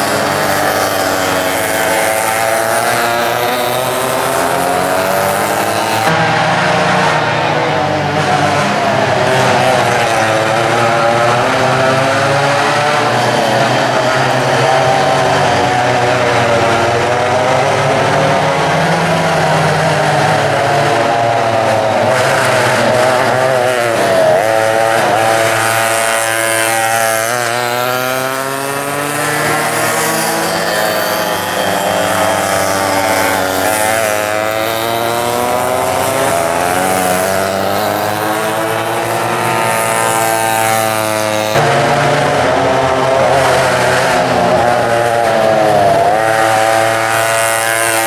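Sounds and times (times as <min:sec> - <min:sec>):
racing kart engines buzzing: 0:00.0 - 0:48.0.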